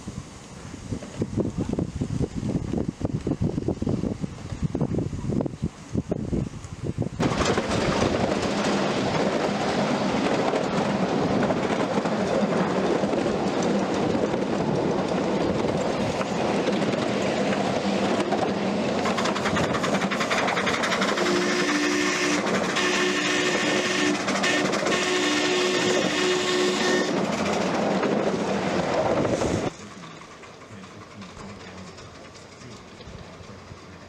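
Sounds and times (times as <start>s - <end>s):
miniature train wheels rolling on rails: 7.2s - 34.0s.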